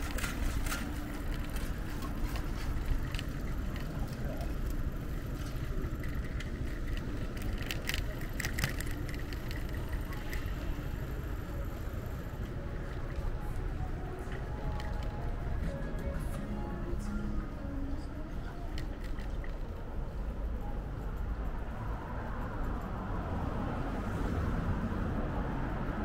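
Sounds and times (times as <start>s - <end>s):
light clicks and rattles: 0.0s - 10.9s
street traffic noise: 0.0s - 26.0s.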